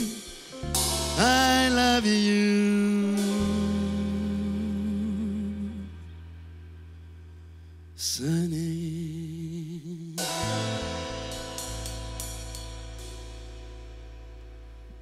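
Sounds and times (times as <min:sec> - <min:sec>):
funk band playing: 0:00.0 - 0:06.0, 0:10.2 - 0:15.0
man singing with vibrato: 0:00.0 - 0:06.0, 0:08.0 - 0:10.5
sustained bass note: 0:00.0 - 0:15.0
cymbal hits: 0:10.2 - 0:14.5.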